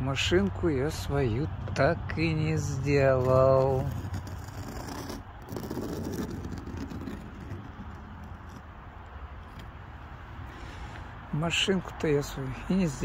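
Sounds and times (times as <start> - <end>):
low outdoor rumble: 0.0 - 13.0
fingertip brushing snow on metal: 2.6 - 8.7.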